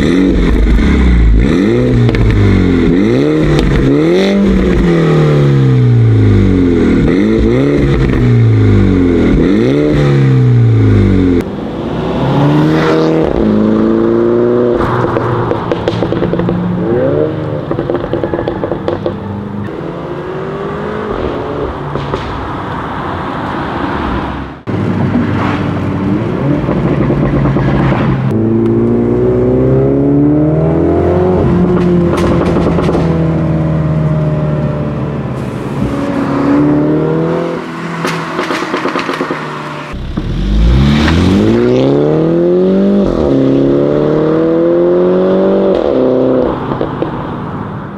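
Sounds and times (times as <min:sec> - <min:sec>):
exhaust crackles and pops: 0:01.9 - 0:02.5, 0:14.8 - 0:16.6, 0:38.0 - 0:41.2
car engine accelerating hard: 0:26.0 - 0:47.1.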